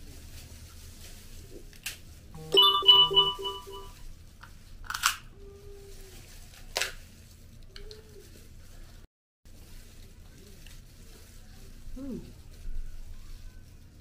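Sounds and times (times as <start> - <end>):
phone notification beeps: 2.4 - 3.9.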